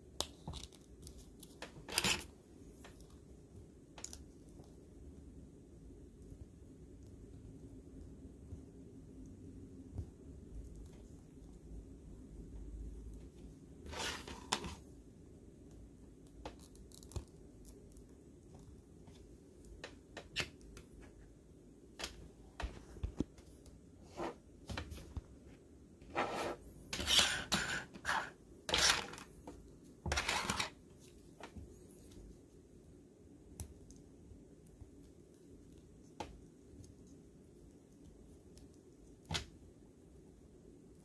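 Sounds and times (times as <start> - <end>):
plastic scraping: 30.1 - 30.8.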